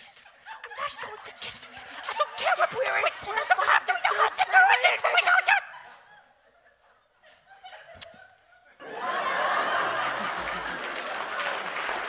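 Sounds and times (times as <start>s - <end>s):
audience laughing: 0.3s - 12.0s
applause: 9.4s - 12.0s.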